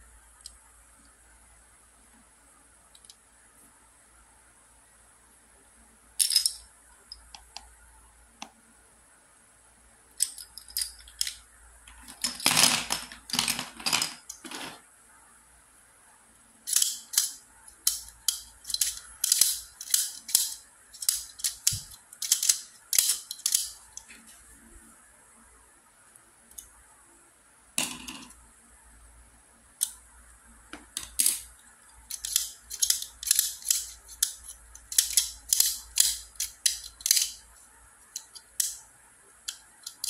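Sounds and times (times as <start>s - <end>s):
plastic cubes clacking: 10.2s - 14.8s, 16.7s - 24.2s, 32.1s - 38.8s.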